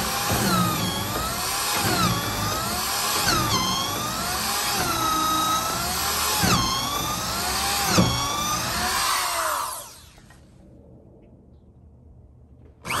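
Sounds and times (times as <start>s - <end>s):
electric drill drilling into wood: 0.0s - 10.4s.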